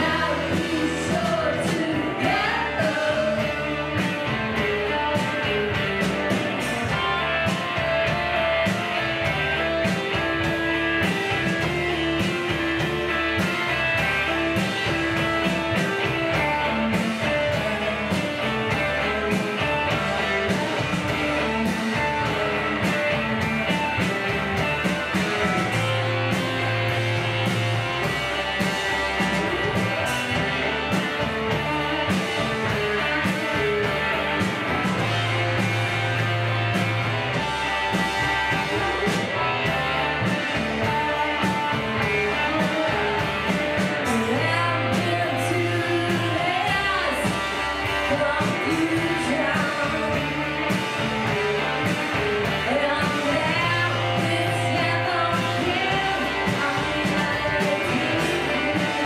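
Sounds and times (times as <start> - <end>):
person singing: 0.0 - 4.2, 43.9 - 51.0, 52.5 - 59.0
drums: 0.0 - 59.0
electric guitars: 0.0 - 59.0.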